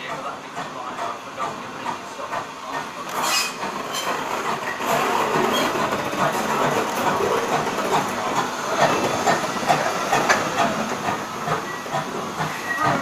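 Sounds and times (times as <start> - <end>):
steam hissing: 0.0 - 13.0
wheels clicking on rails: 0.0 - 13.0.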